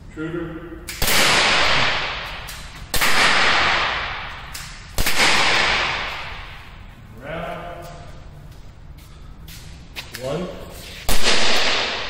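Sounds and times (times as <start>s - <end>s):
air pistol shots echoing: 0.9s - 6.8s, 11.1s - 12.0s.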